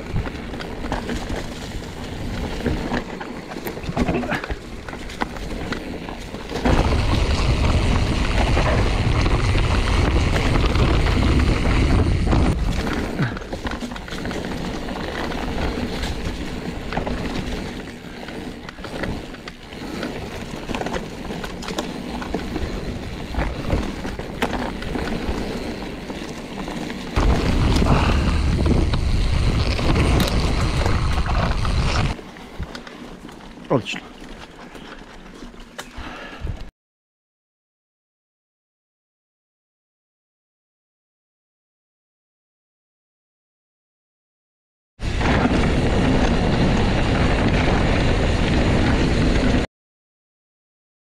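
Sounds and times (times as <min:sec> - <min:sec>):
bike rattling over bumps: 0:00.0 - 0:36.4, 0:45.0 - 0:49.7
bike tyres on dirt trail: 0:00.0 - 0:36.7, 0:45.0 - 0:49.7
wind buffeting microphone: 0:27.2 - 0:32.7.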